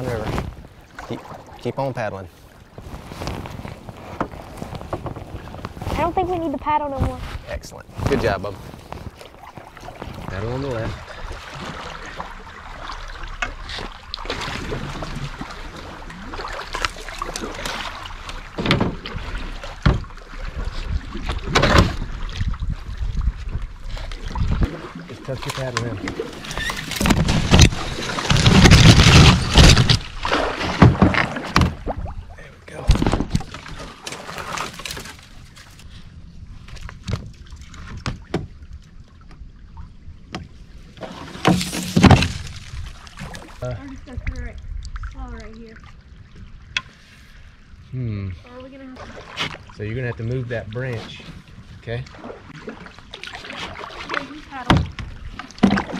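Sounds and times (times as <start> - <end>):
paddles dipping in water: 0.0 - 55.9
water washing: 2.9 - 35.3, 48.5 - 55.9
paddle knocking against canoe hull: 37.0 - 38.6, 52.1 - 55.9.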